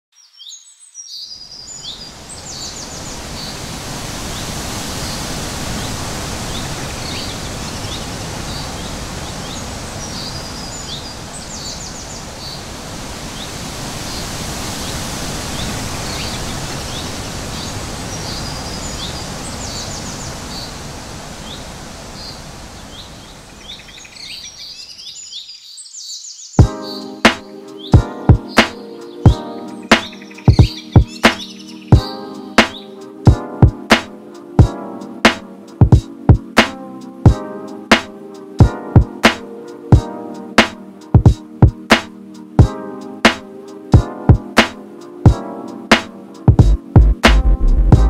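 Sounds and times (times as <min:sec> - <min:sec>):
small birds chirping: 0:00.2 - 0:33.1
steady rushing noise: 0:45.9 - 0:48.0.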